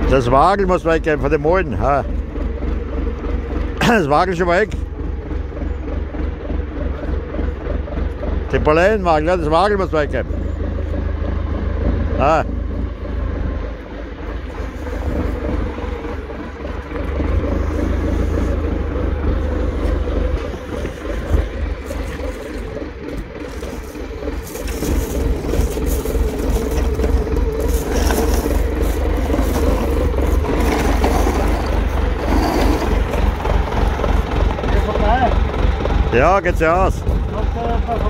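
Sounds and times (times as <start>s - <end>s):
forklift engine running: 0.0s - 38.0s
wooden pallets scraping: 14.3s - 34.2s.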